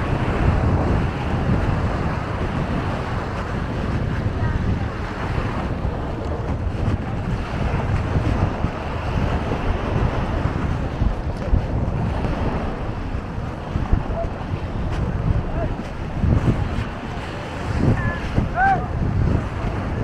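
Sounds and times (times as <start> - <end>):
sea waves on beach: 0.0 - 20.0
wind gusting on microphone: 0.0 - 20.0.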